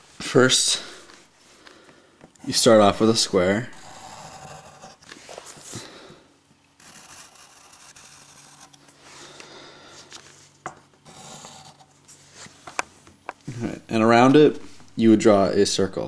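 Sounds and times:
pencil scratching on paper: 3.7s - 5.1s, 6.8s - 8.8s, 11.1s - 11.9s.

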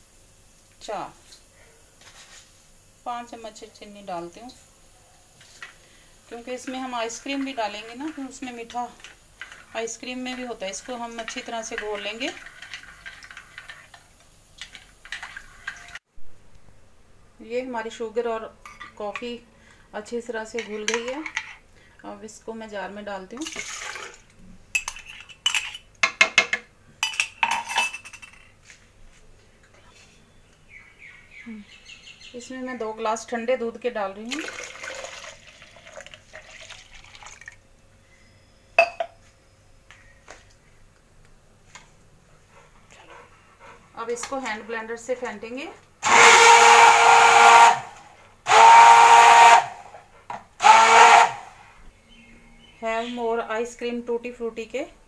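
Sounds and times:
spoon clinking against mug: 38.8s - 39.2s
hand blender motor whining: 46.0s - 47.9s, 50.6s - 51.4s.

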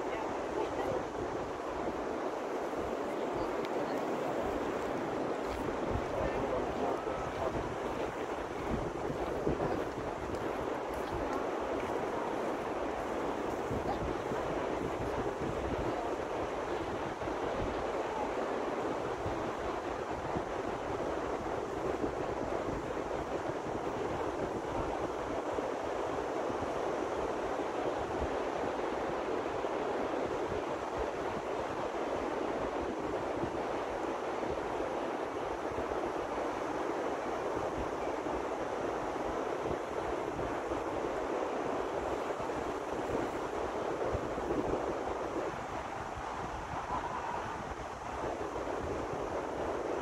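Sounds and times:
wind buffeting microphone: 0.0s - 28.5s, 38.9s - 50.0s
ocean surf: 0.0s - 50.0s.

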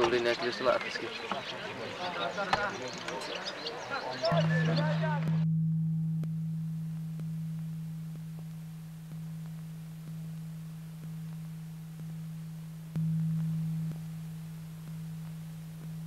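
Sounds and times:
low humming tone: 4.3s - 16.0s.

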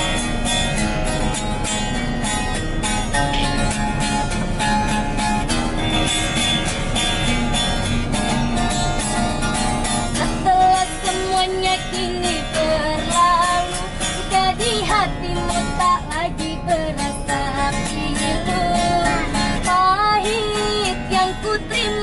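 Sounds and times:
acoustic guitar strumming: 0.0s - 22.0s
person singing: 10.2s - 22.0s.

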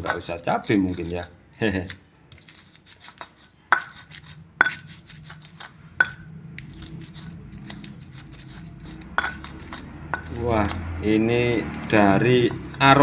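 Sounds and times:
stone pestle pounding in mortar: 0.0s - 1.2s, 3.1s - 6.2s, 7.2s - 13.0s
stone knocking on stone: 3.2s - 4.0s, 5.6s - 6.2s, 9.2s - 10.8s, 11.8s - 12.9s.

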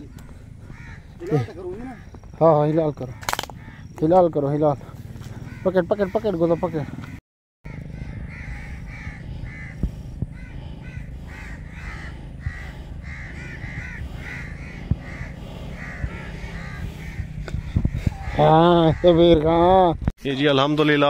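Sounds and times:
flock of birds cawing: 0.0s - 19.6s
low background rumble: 7.7s - 20.0s.

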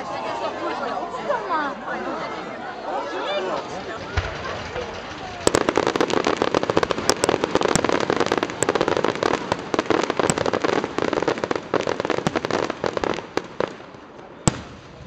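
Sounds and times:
fireworks bangs: 3.3s - 15.0s
fireworks crackling: 3.3s - 15.0s.

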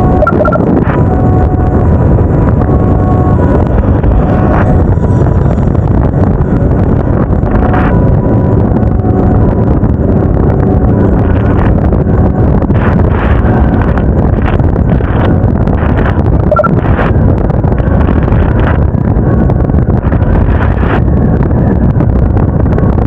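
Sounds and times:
motorcycle engine running: 0.0s - 23.0s
wind rushing over microphone: 0.0s - 23.0s
brief beeps: 0.2s - 0.7s, 16.5s - 16.8s.

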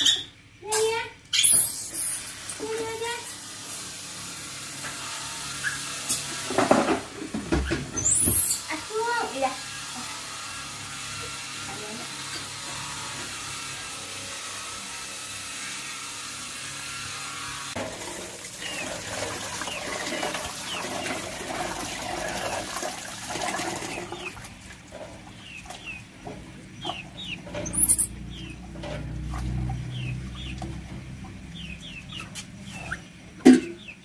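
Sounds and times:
tap water running into pot: 17.8s - 25.0s.

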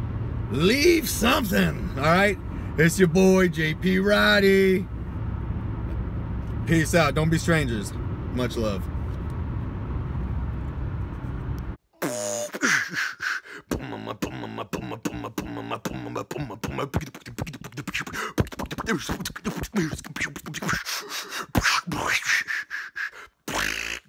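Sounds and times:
person beatboxing: 12.0s - 24.0s.

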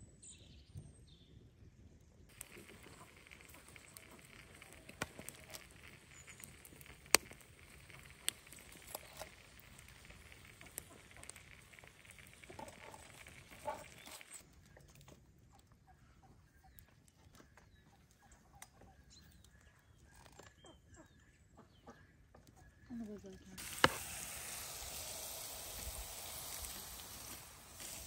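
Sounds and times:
food sizzling on a grill: 2.3s - 14.4s, 23.6s - 28.0s
sharp clicks: 2.3s - 14.4s.

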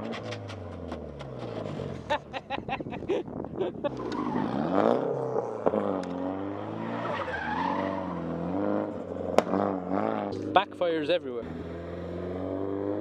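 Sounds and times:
car engine revving: 0.0s - 2.4s, 3.1s - 13.0s
exhaust backfires: 0.0s - 13.0s
tyres squealing: 6.8s - 8.4s.

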